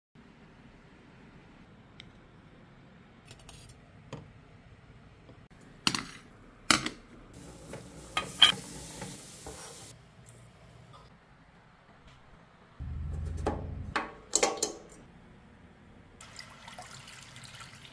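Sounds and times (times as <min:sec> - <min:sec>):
steady hiss: 0:07.4 - 0:10.0.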